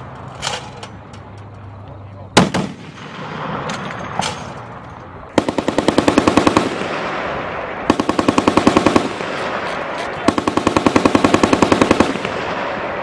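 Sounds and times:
heavy machine gun firing: 0:02.4 - 0:03.7, 0:05.4 - 0:13.0.

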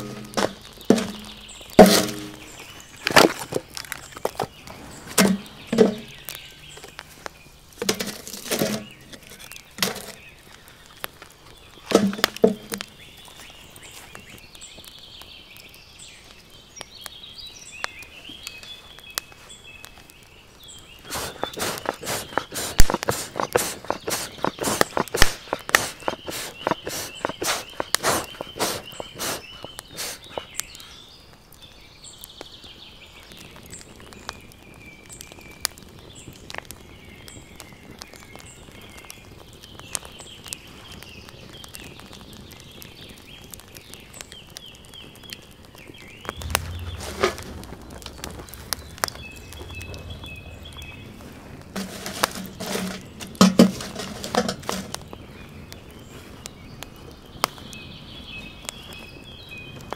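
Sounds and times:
logs knocking onto fire: 0:00.0 - 0:07.1, 0:07.8 - 0:10.3, 0:11.9 - 0:12.9, 0:21.1 - 0:30.6, 0:46.3 - 0:55.2
birds chirping faintly: 0:00.0 - 0:59.9
wood fire crackling: 0:00.0 - 0:59.9
low rumble: 0:46.4 - 0:51.8.

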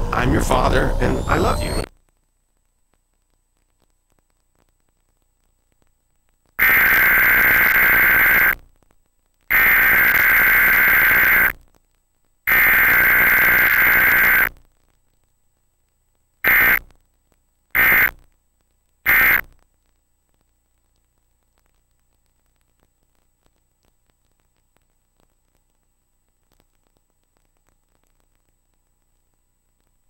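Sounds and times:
short data bursts: 0:00.1 - 0:01.9, 0:06.6 - 0:08.6, 0:09.5 - 0:11.6, 0:12.5 - 0:14.6, 0:16.4 - 0:17.0, 0:17.8 - 0:18.3, 0:19.0 - 0:19.6
harsh digital data tone bursts: 0:00.3 - 0:01.9, 0:06.6 - 0:08.6, 0:09.5 - 0:11.6, 0:12.5 - 0:14.5, 0:16.4 - 0:16.8, 0:17.8 - 0:18.2, 0:19.1 - 0:19.5.

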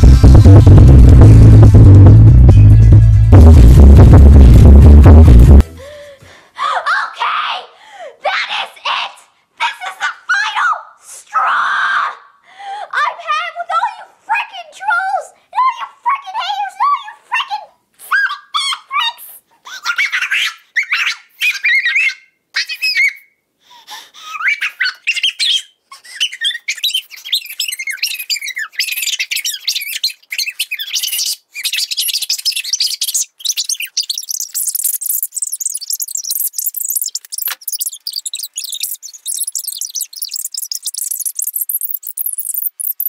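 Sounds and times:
sped up squeaky chatter: 0:26.0 - 0:43.0.

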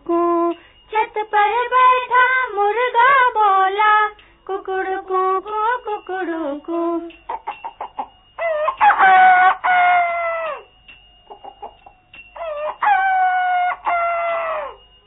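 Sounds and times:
rooster clucking: 0:07.3 - 0:10.6
rooster crowing: 0:07.3 - 0:14.9.

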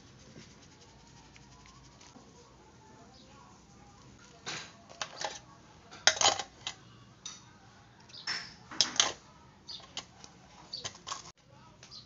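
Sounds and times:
metal utensils clinking: 0:04.4 - 0:06.8, 0:08.2 - 0:09.2, 0:10.7 - 0:11.3.

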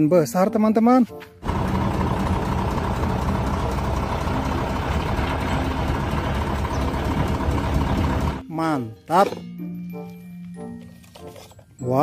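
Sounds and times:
heavy truck engine running: 0:01.4 - 0:08.4.

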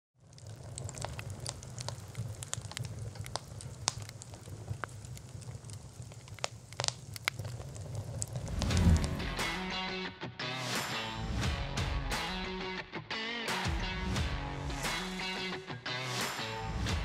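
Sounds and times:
fire crackling and popping: 0:00.2 - 0:10.0
low boom: 0:08.4 - 0:09.7.

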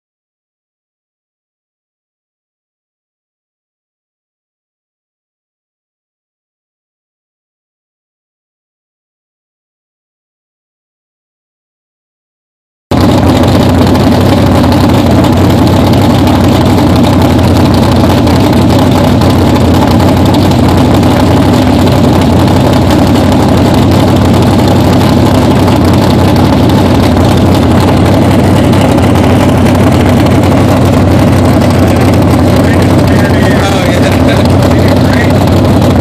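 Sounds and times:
loud car engine idling: 0:12.9 - 0:36.0.

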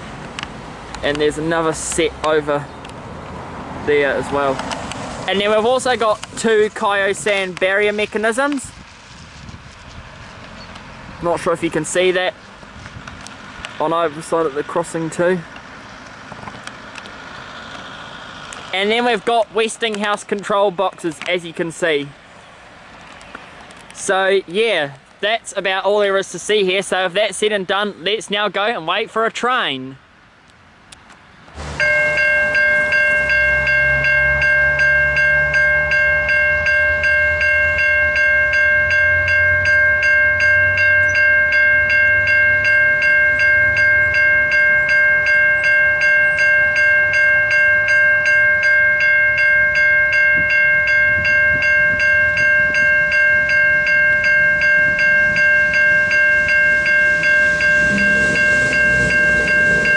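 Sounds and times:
level crossing bells ringing: 0:31.6 - 0:59.9.

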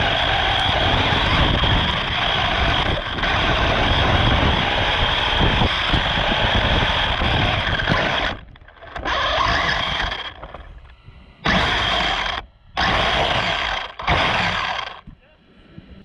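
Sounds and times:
radio-controlled car running: 0:00.0 - 0:15.2
faint high whine: 0:06.9 - 0:16.0.

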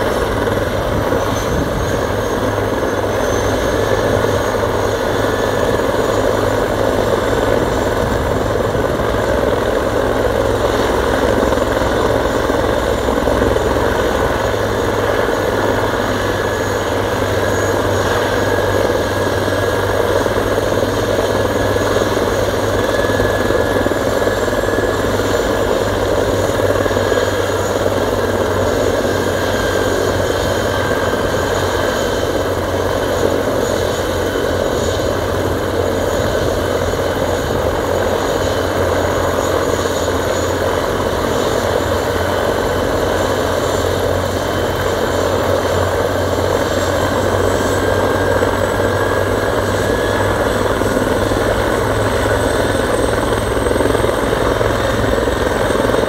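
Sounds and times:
helicopter rotor noise: 0:00.0 - 0:56.0
helicopter turbine whine: 0:00.0 - 0:56.0.

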